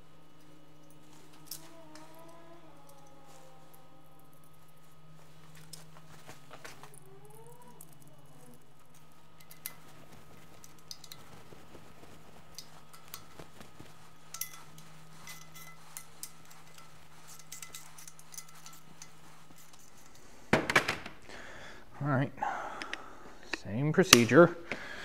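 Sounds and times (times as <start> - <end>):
steady low hum: 0.0 - 25.0
metal nuts and washers clinking: 8.9 - 9.9, 14.2 - 20.2.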